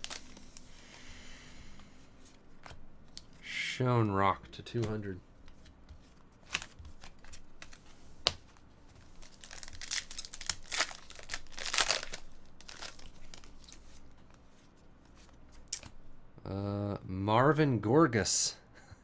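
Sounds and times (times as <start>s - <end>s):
foil wrapper tearing and crinkling: 0.0s - 0.5s, 9.2s - 13.8s.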